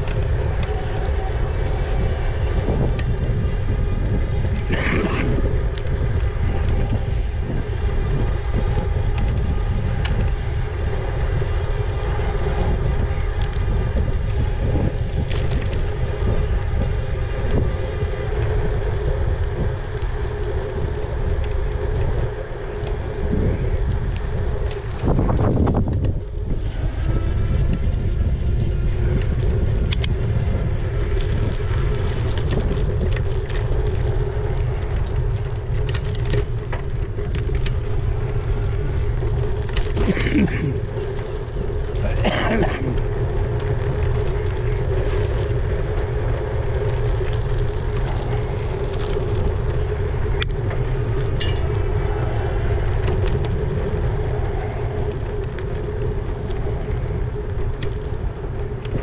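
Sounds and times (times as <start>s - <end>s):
road noise: 0.0s - 59.0s
wind rumble on microphone: 0.0s - 59.0s.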